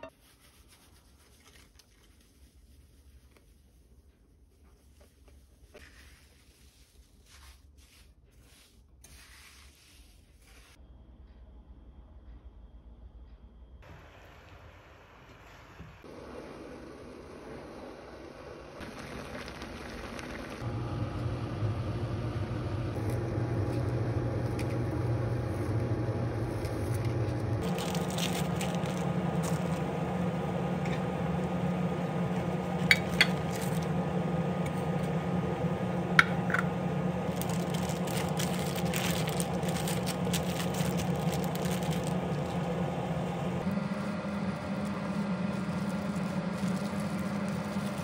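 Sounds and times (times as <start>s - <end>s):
kitchen appliance humming: 13.8s - 48.0s
plastic bags crinkling: 26.5s - 30.0s, 32.8s - 33.9s, 37.2s - 42.9s, 43.6s - 48.0s.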